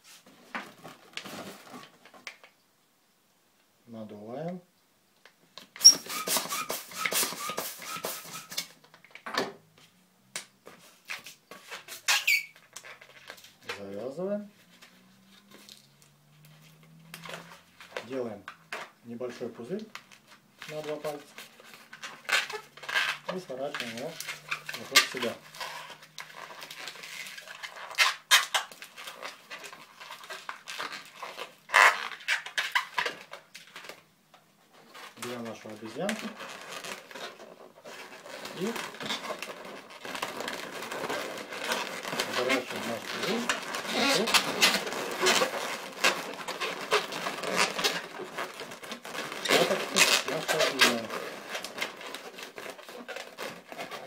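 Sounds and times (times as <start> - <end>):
balloon handling: 0.0 - 2.5, 5.6 - 10.0, 10.6 - 54.0
balloon rubber squeaks: 5.7 - 8.8, 10.9 - 13.9, 18.7 - 34.0, 34.8 - 54.0
hand pump air strokes: 5.8 - 8.6.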